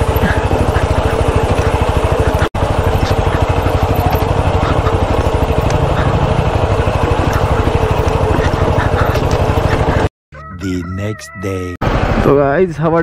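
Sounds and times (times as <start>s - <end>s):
motorcycle engine at low revs: 0.0s - 10.1s.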